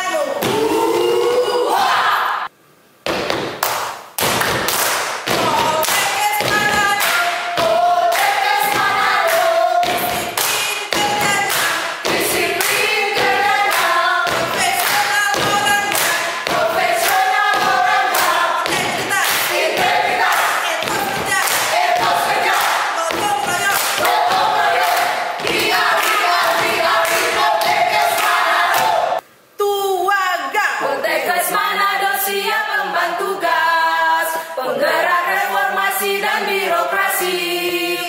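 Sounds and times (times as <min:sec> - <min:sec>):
group singing a cheer song: 0:04.4 - 0:29.2, 0:30.7 - 0:38.0
steady thumping beat: 0:09.8 - 0:28.1.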